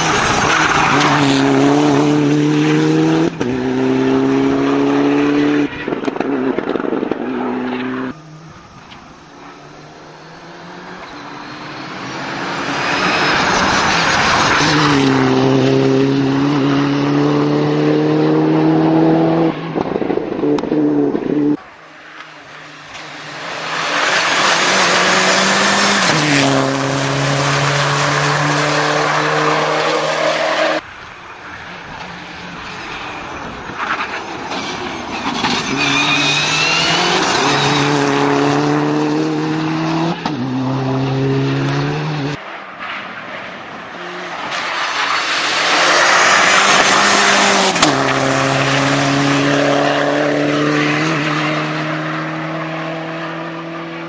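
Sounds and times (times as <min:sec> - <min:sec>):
car engine at full throttle: 0:00.0 - 0:35.6, 0:36.4 - 0:54.0
tyre squeal: 0:10.9 - 0:15.1, 0:32.9 - 0:38.2.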